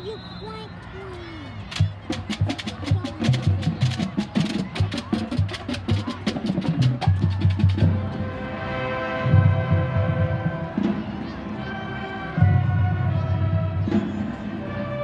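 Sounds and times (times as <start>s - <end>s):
snare drums and stick clicks: 1.7s - 7.8s.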